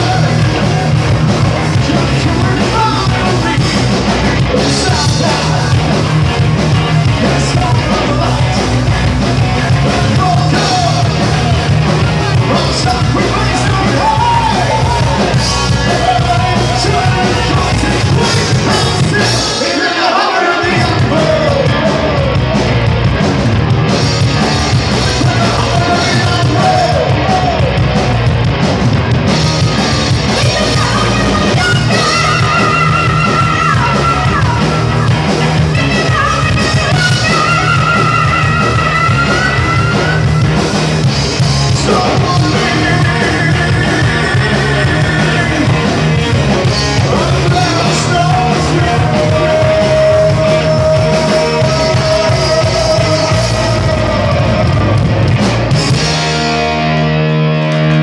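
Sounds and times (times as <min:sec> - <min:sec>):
heavy metal band playing live: 0:00.0 - 0:58.0
high-pitched singing: 0:35.7 - 0:40.4.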